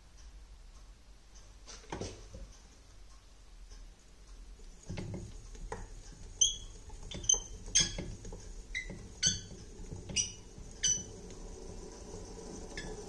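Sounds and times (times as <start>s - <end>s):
wooden handle squeaking: 4.8s - 13.0s.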